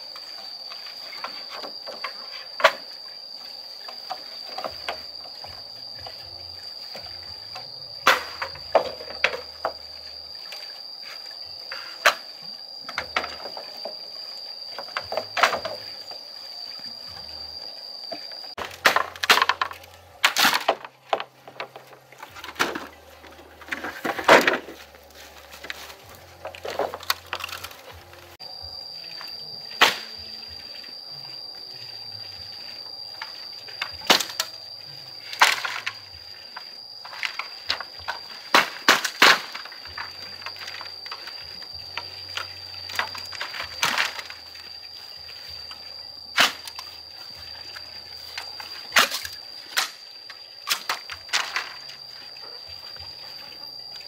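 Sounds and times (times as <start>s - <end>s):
high-pitched whine: 0.0s - 54.0s
sharp knocks and cracks: 34.0s - 34.6s, 38.5s - 39.7s.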